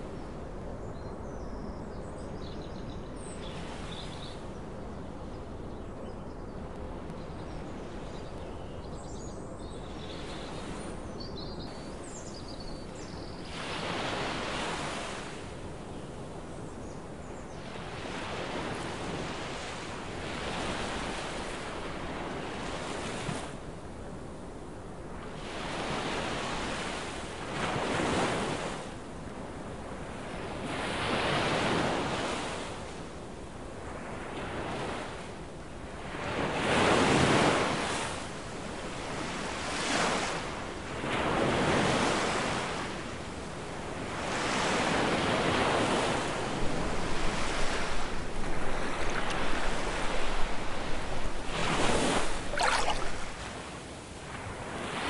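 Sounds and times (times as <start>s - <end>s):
waves breaking on shore: 36.2s - 55.0s
wind buffeting microphone: 45.6s - 53.8s.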